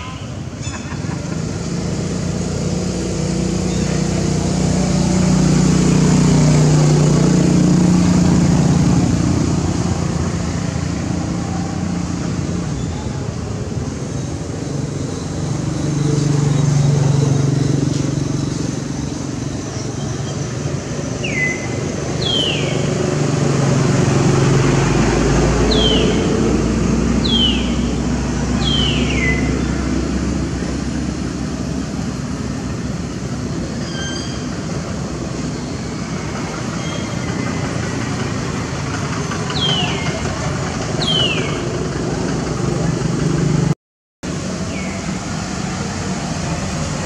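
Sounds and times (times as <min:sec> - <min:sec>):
high downward-sliding calls: 0:18.8 - 0:30.2.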